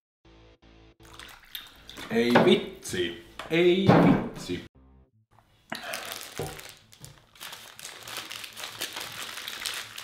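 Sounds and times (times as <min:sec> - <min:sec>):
paper wrapper crinkling: 0:05.8 - 0:10.0.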